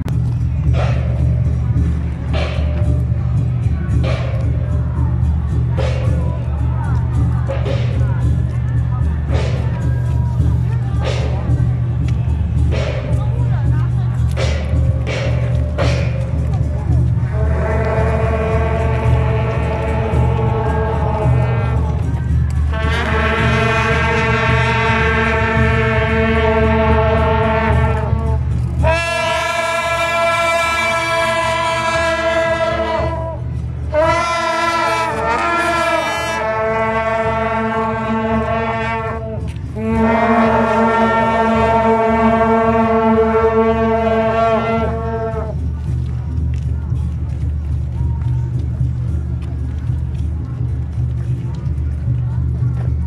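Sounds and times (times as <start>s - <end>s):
low rumble: 0.0s - 53.0s
brass horns sounding held chords: 14.4s - 45.9s.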